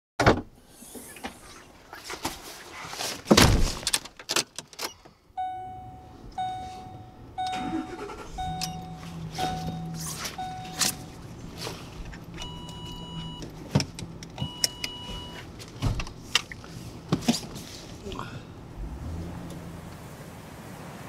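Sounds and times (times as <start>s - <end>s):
car door slam: 3.3s - 3.9s
car warning chime dinging: 5.3s - 11.4s, 12.3s - 13.6s, 14.4s - 15.4s
low steady hum: 5.3s - 20.0s
knocks and thuds inside car: 12.1s - 16.2s.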